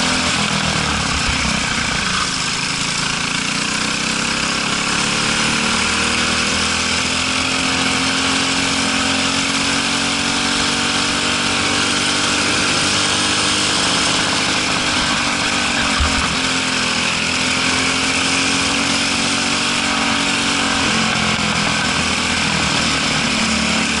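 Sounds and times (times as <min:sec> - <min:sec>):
kart engine running: 0:00.0 - 0:24.0
short low thump: 0:15.8 - 0:16.6.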